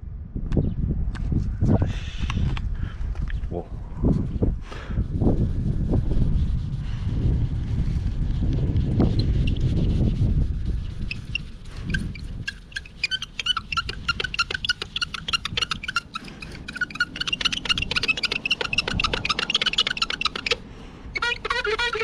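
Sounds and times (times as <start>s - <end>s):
low rumble: 0.0s - 12.4s
foam pad squeaking on car paint: 8.5s - 22.0s.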